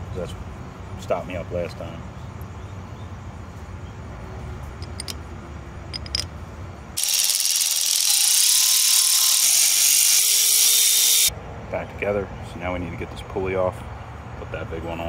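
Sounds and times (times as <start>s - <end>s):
metal parts clicking: 4.8s - 5.2s, 5.9s - 6.3s, 7.0s - 11.3s
ratchet wrench clicking: 4.8s - 5.2s, 6.0s - 6.3s, 7.0s - 11.3s.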